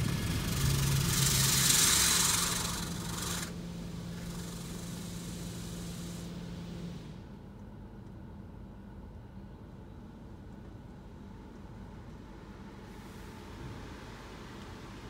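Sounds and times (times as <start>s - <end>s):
high-pressure water spray hissing: 0.0s - 6.3s
steady low hum: 0.0s - 15.0s.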